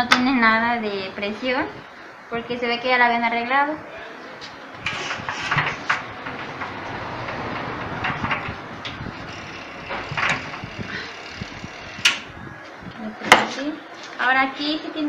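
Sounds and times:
steady background noise: 0:00.0 - 0:15.0.

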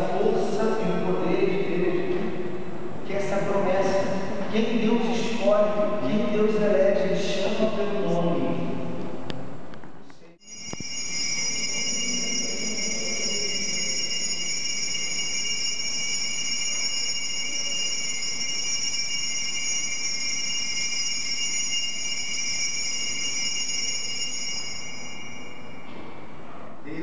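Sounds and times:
bells ringing: 0:10.4 - 0:25.8.

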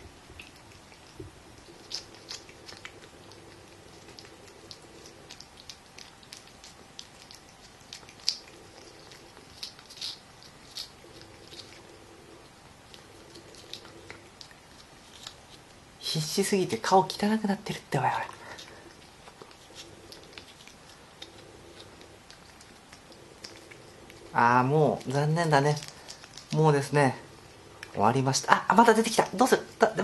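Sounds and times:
cat tongue licking paste: 0:00.2 - 0:15.8, 0:18.2 - 0:24.3.

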